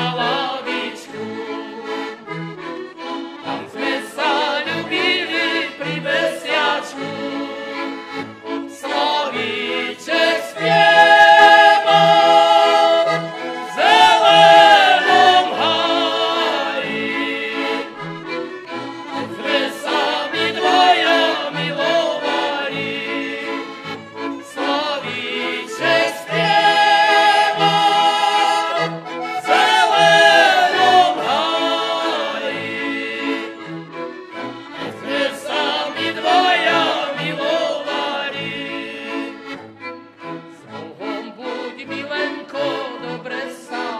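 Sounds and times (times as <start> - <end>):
button accordion: 0.0 - 43.9
violins: 0.0 - 43.9
men singing together: 8.9 - 17.9, 19.4 - 23.5, 24.7 - 33.4, 35.0 - 39.3.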